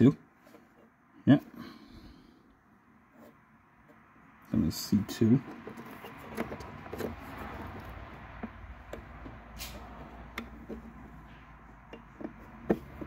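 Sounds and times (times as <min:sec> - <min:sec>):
wiring harness clicks and rustles: 0:05.4 - 0:13.0.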